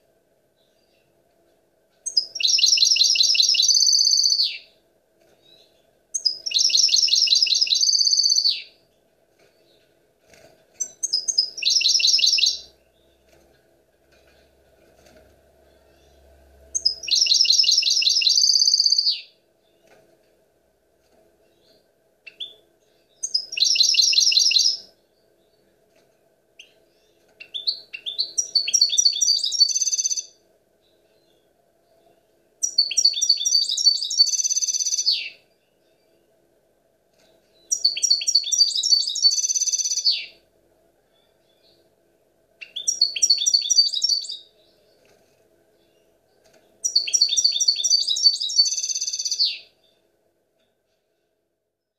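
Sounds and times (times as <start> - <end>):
bird trilled twittering: 6.2 - 8.7, 10.8 - 12.7, 15.8 - 19.3, 27.4 - 30.3, 32.6 - 35.4, 37.7 - 40.3, 42.6 - 44.5, 46.8 - 49.6.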